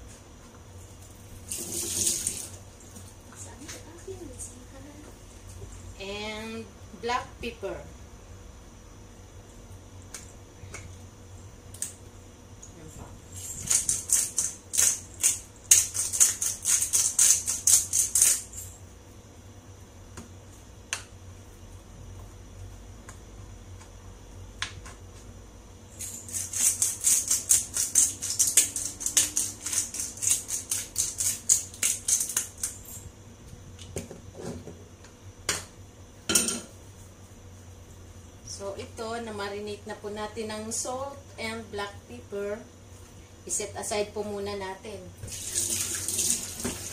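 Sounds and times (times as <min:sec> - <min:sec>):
pepper mill grinding: 0:13.3 - 0:18.8, 0:25.9 - 0:33.0.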